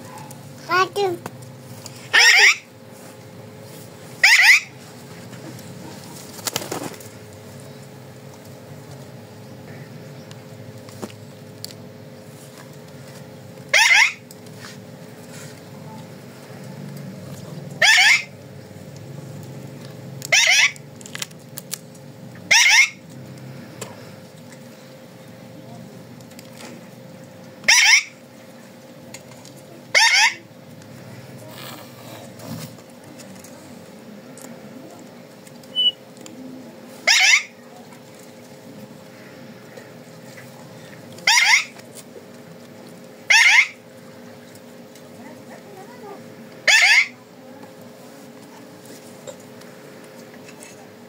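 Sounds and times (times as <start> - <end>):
parakeet screeching: 2.1 - 2.7, 4.2 - 4.7, 13.7 - 14.2, 17.8 - 18.3, 20.3 - 20.8, 22.5 - 23.0, 27.7 - 28.1, 29.9 - 30.4, 37.0 - 37.5, 41.2 - 41.7, 43.3 - 43.8, 46.6 - 47.2
faint bird chirp: 35.7 - 36.0.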